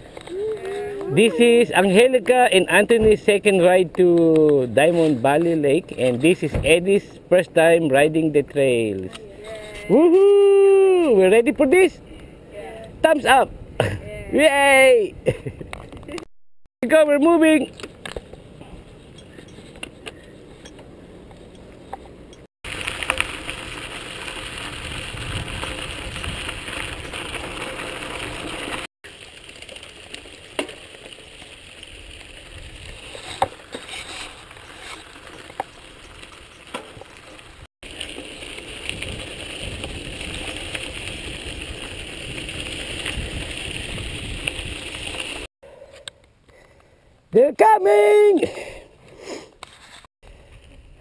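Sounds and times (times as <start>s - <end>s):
bike tyres rolling on dirt: 0.0s - 9.1s, 22.6s - 45.5s
bike clicks and rattles: 17.7s - 45.5s.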